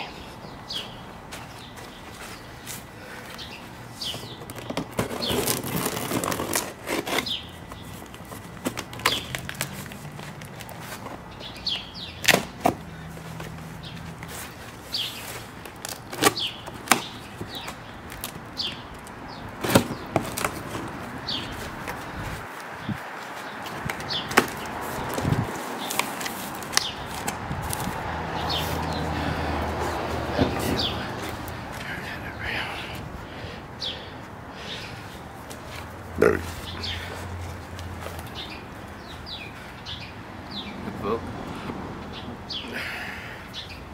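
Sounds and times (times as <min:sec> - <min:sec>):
cardboard rustling and scraping: 0:04.1 - 0:11.2, 0:19.6 - 0:28.0
tape cracking: 0:04.4 - 0:11.2, 0:15.1 - 0:28.0.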